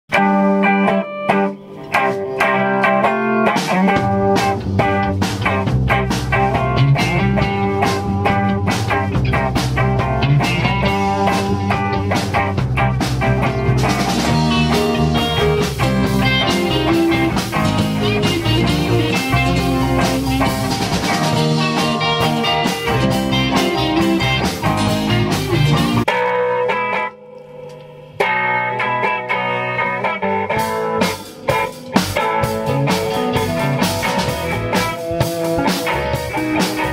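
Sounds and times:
rock band music: 0.1s - 36.9s
steady drum beat: 1.3s - 26.3s, 30.0s - 36.9s.

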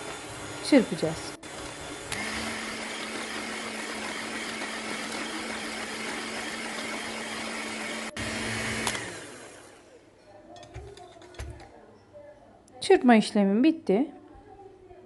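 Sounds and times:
electric hand mixer running: 0.0s - 10.0s.

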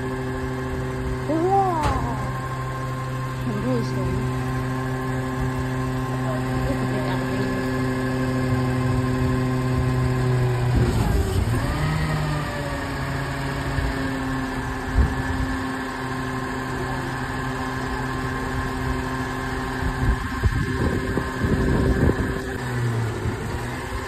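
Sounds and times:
garbage truck engine hum with whine: 0.0s - 24.0s.

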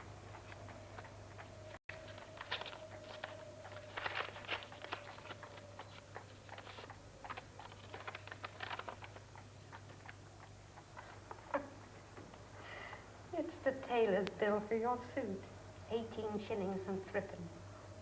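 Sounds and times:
low steady hum: 0.0s - 18.0s
paper crackling and rustling: 1.9s - 9.3s.

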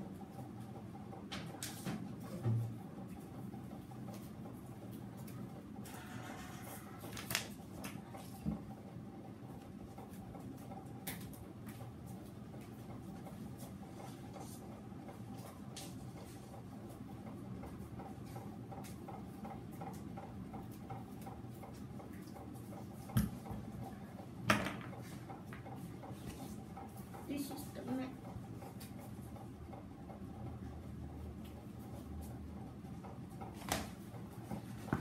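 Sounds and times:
knocks of a mat being handled: 33.4s - 35.0s.

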